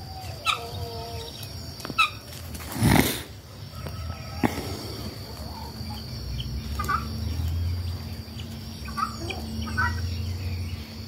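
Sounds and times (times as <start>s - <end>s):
poultry calls: 0.0s - 10.8s.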